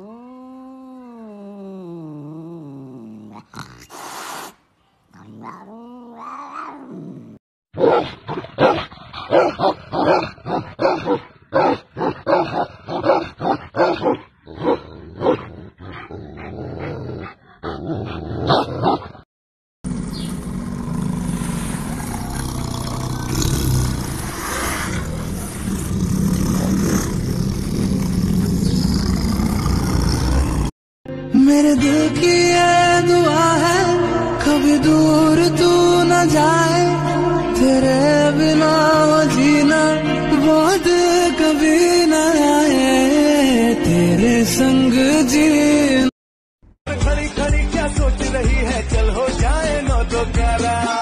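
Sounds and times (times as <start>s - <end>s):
cat crying: 5.2s - 6.9s
dog barking deeply: 7.8s - 15.5s, 18.4s - 19.2s.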